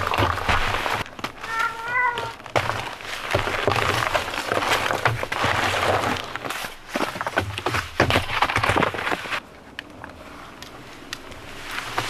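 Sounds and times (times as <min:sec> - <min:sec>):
foam pad rustling and clatter: 0:00.0 - 0:09.4
cat meowing: 0:01.5 - 0:02.4.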